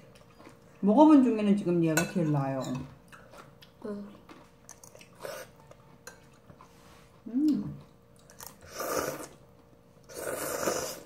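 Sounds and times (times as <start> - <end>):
slurping noodles: 8.6 - 9.4, 10.1 - 11.0.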